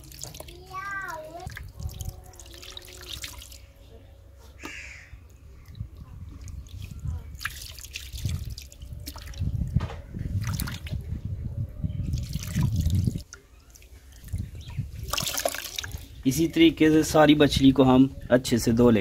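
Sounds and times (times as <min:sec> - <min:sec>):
water splashing and dripping: 0:00.0 - 0:03.8, 0:05.2 - 0:11.1, 0:12.1 - 0:16.3.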